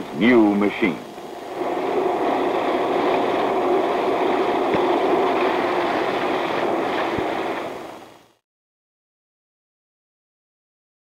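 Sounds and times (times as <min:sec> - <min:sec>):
tape drive whirring: 0:01.1 - 0:08.3.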